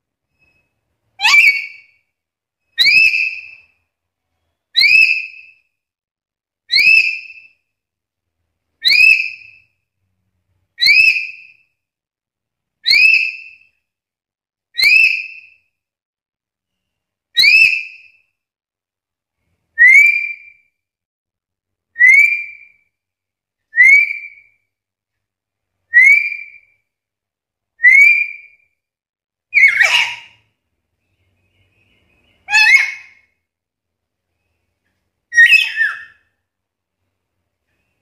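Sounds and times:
bird giving rising whistled calls: 35.3s - 36.2s.

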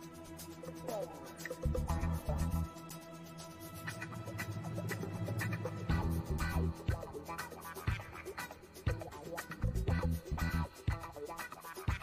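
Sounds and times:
music with steady beat: 0.0s - 12.0s
deep bass notes: 5.9s - 6.9s.

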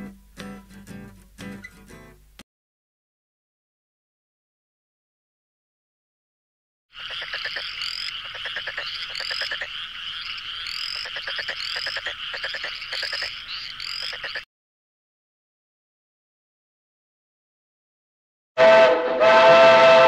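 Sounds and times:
frogs calling: 6.9s - 14.5s.

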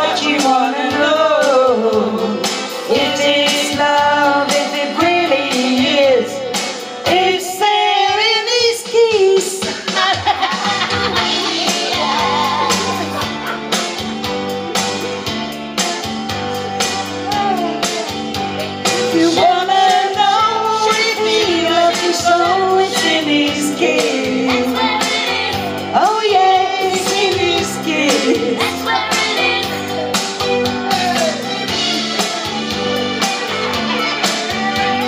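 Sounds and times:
women singing karaoke: 0.0s - 13.6s, 18.7s - 30.6s, 33.1s - 35.0s
pop backing track: 0.0s - 35.0s.

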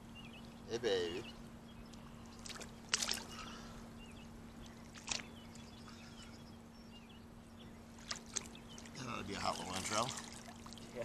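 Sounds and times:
water splashing: 2.4s - 3.5s, 4.6s - 5.7s, 7.9s - 11.0s.

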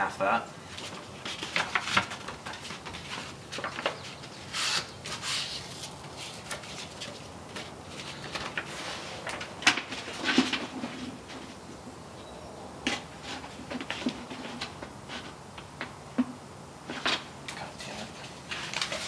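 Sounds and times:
sandpaper rustling: 4.4s - 7.2s
sandpaper tearing: 4.5s - 6.4s.

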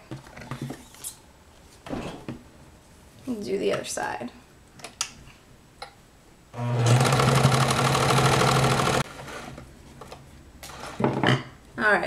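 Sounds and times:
sewing machine stitching: 6.6s - 9.5s.

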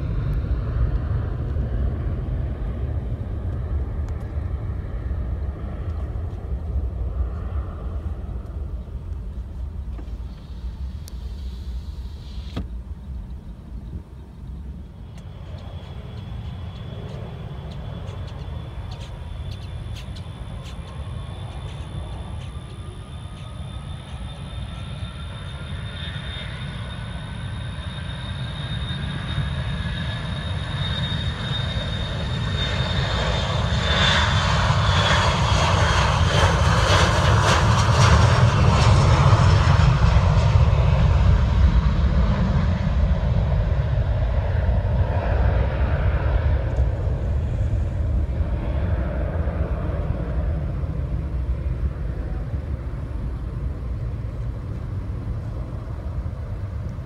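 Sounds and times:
jet engine rumble: 0.0s - 57.0s
jet engines whining: 0.0s - 57.0s.

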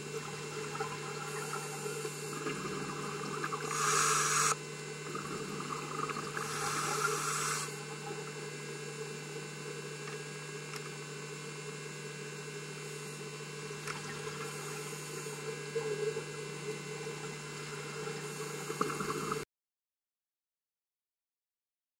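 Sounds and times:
steady low hum: 0.0s - 19.4s
diver breathing through regulator: 3.5s - 5.3s, 6.3s - 7.8s.

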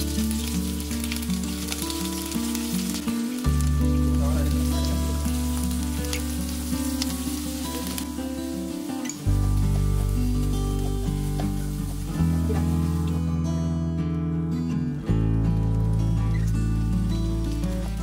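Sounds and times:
oil sizzling in a frying pan: 0.0s - 13.4s, 15.6s - 18.0s
background music with bass line: 0.0s - 18.0s.

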